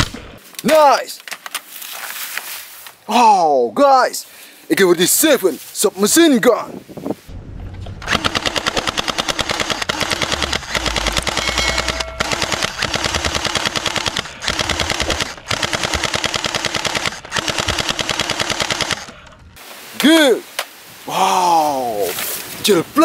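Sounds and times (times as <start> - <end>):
toy blaster firing bursts: 8.1 - 19.1.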